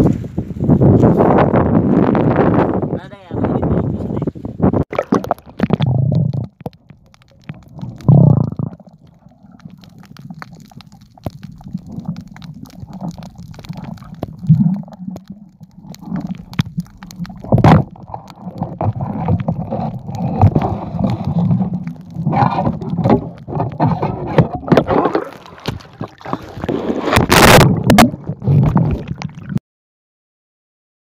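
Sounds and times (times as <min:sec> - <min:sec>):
muffled underwater gurgling: 0:04.9 - 0:29.6
small clicks and bumps: 0:05.1 - 0:29.5.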